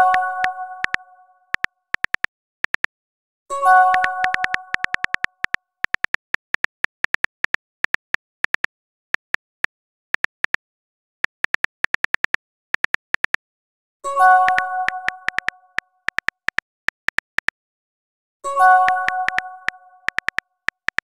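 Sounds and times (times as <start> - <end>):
keyboard tap clicks: 1.6 - 2.9, 3.9 - 9.6, 11.3 - 13.4, 14.5 - 17.6, 18.9 - 21.0.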